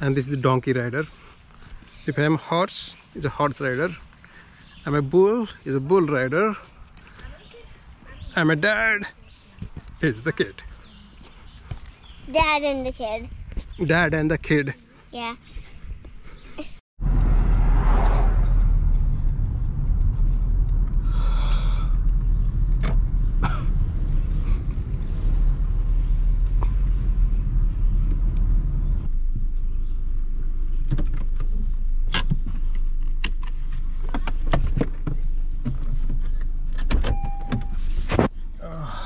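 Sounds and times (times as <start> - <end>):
car road and engine rumble: 17.0 - 39.0
short steady beep: 37.1 - 37.9.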